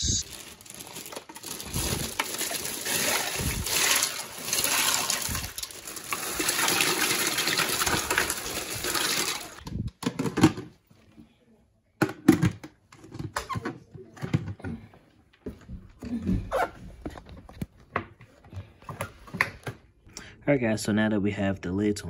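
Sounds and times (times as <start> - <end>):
ice rattling into bucket: 0.2 - 9.6.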